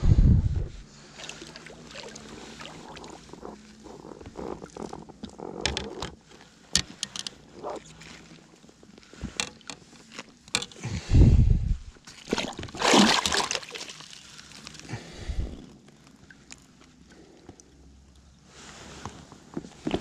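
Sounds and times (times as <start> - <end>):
water splashing against boat: 1.0 - 4.0, 12.0 - 16.8
knocks and clicks of handling: 5.3 - 7.4, 10.5 - 10.8.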